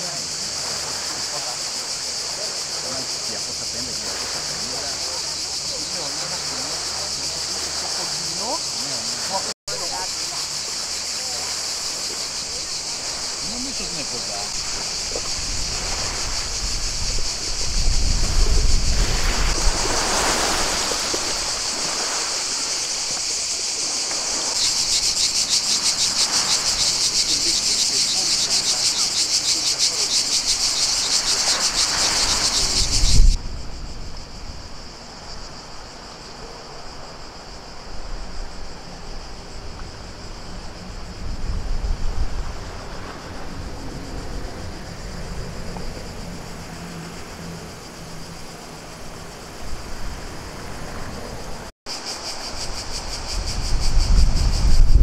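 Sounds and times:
cicadas buzzing: 0.0 - 55.0
wind hiss: 0.0 - 55.0.

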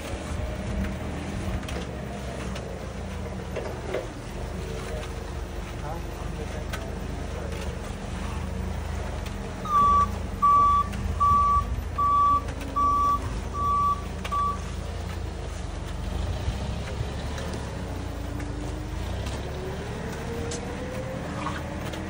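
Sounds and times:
engine idling: 0.0 - 22.0
reversing alarm beeping: 9.6 - 14.7.

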